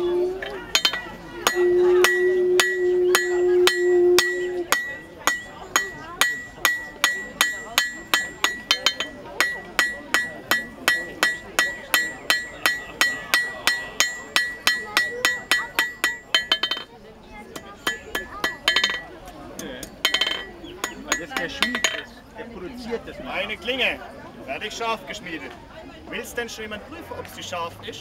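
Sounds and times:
hammer striking steel on anvil: 0:00.4 - 0:16.9, 0:17.6 - 0:22.1.

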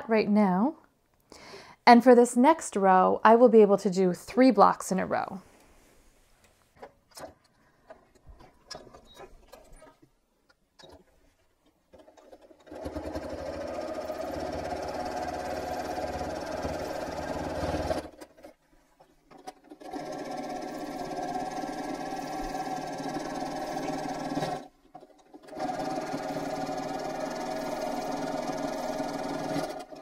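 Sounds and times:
sewing machine stitching: 0:11.9 - 0:30.0.

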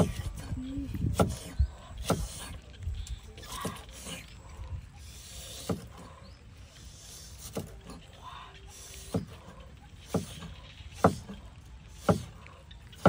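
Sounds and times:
cleaver chopping on wooden board: 0:10.0 - 0:11.4, 0:12.0 - 0:12.3.

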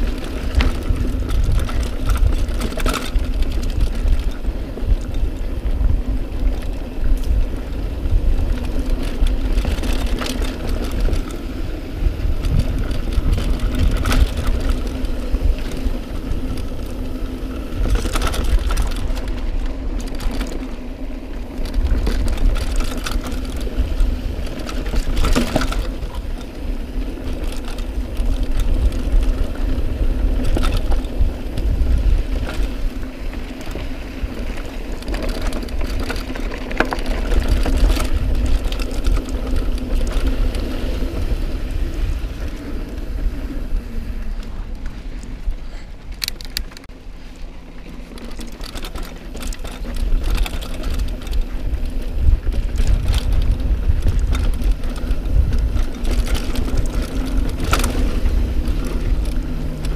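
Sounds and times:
bike clicks and rattles: 0:00.0 - 0:59.9
bike freehub buzzing: 0:00.0 - 0:59.9
bike tyres rumbling on dirt: 0:00.0 - 0:59.9
wind on camera: 0:00.0 - 0:59.9.

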